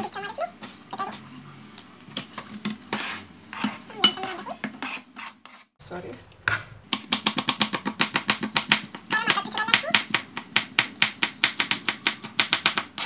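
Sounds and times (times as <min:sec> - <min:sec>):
knife chopping on plastic cutting board: 0:06.5 - 0:13.0.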